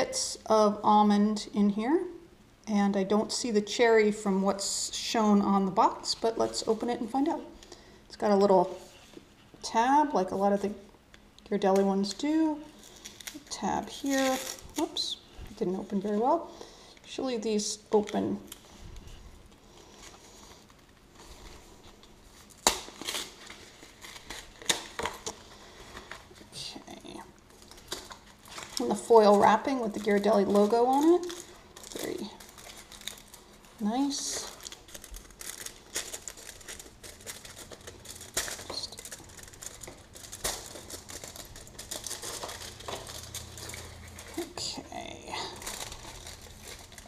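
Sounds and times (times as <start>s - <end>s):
paper crinkling: 12.6s - 15.1s, 17.9s - 26.6s, 27.4s - 47.0s.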